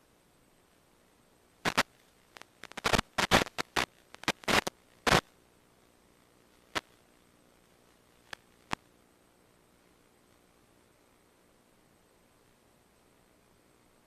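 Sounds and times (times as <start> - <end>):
static crackle bursts: 1.6 - 10.7.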